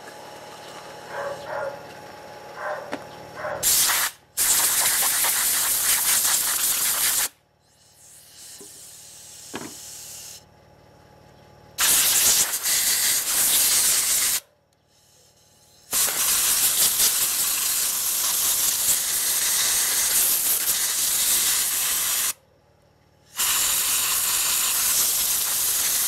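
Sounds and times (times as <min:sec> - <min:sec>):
air blow gun hissing: 0:03.6 - 0:10.4, 0:11.8 - 0:15.2, 0:15.8 - 0:22.4, 0:23.3 - 0:26.0.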